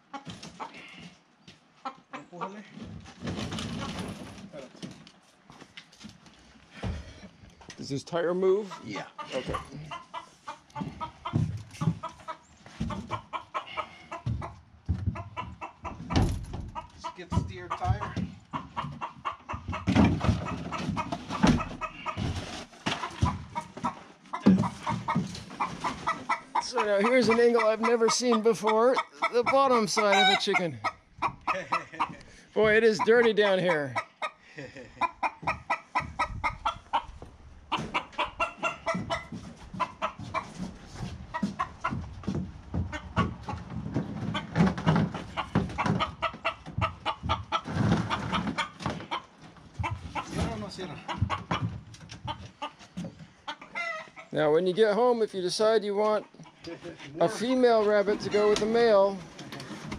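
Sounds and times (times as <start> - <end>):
chickens clucking: 0.0 - 4.7, 6.7 - 59.9
wooden hutch knocking and scraping: 41.4 - 53.2.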